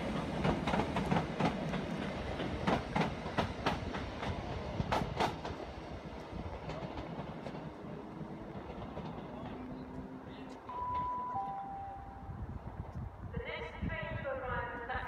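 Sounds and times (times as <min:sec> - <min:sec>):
train wheels clicking on rail joints: 0:00.0 - 0:11.1
train rumble: 0:00.0 - 0:15.0.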